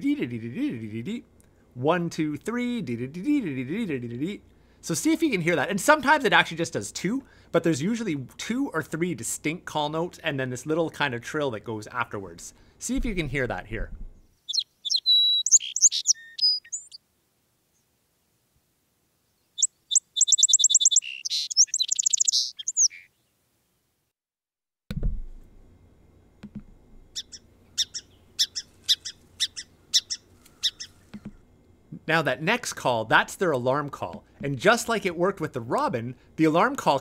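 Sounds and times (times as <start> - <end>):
sharp chip calls: 14.5 - 17.0, 19.6 - 23.1, 27.2 - 31.4
song sparrow singing: 14.5 - 17.0, 19.4 - 23.3, 27.2 - 31.2
recording click: 26.4 - 26.7.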